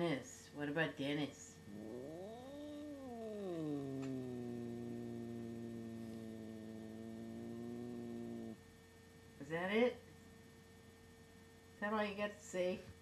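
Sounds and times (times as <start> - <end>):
cat yowling and growling: 1.6 - 8.6.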